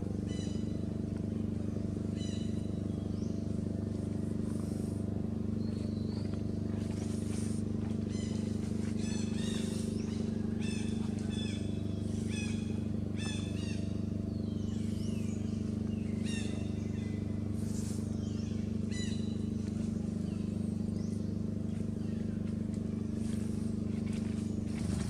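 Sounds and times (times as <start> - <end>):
low hum: 0.0 - 25.0
high falling bird calls: 0.2 - 1.0, 1.6 - 25.0.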